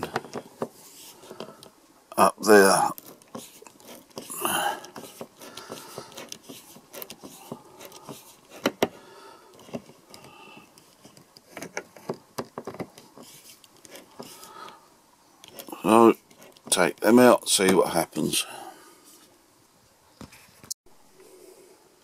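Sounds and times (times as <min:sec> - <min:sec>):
screwdriver clicking and scraping: 0:03.0 - 0:14.5, 0:15.4 - 0:16.8.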